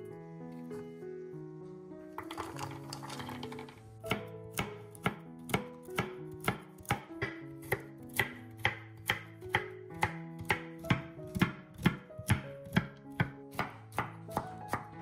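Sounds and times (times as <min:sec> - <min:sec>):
soft plucked background music: 0:00.0 - 0:15.0
knife chopping on wooden board: 0:04.1 - 0:14.9.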